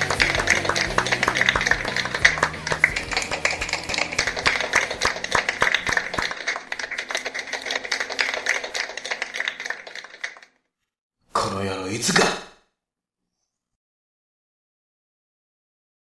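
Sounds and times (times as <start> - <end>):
hands clapping and tapping: 0.0 - 10.5.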